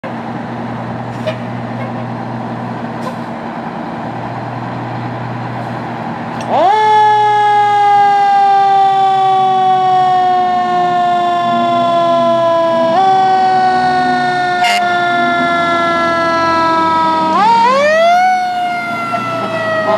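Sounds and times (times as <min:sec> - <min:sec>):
fire engine running: 0:00.0 - 0:19.9
siren winding up and down: 0:11.8 - 0:15.8.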